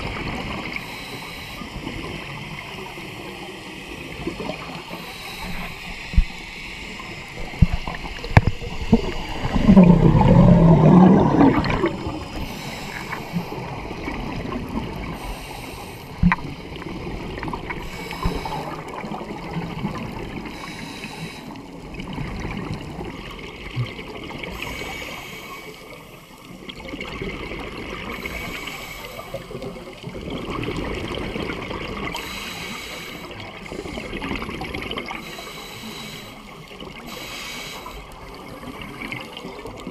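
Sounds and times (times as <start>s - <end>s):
underwater bubbles gurgling: 0.0s - 39.9s
watery background: 0.0s - 39.9s.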